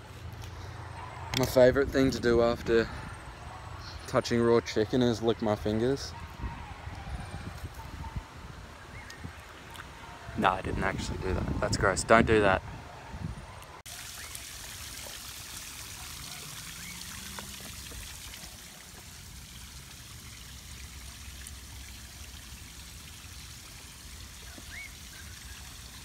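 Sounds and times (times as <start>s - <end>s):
waterfall pouring over rocks: 13.9s - 26.0s.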